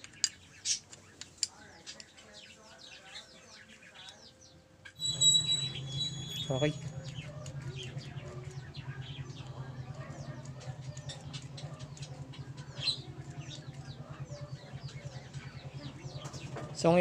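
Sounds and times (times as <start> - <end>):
small birds chirping: 0.0 - 17.0
steady low hum: 4.9 - 17.0.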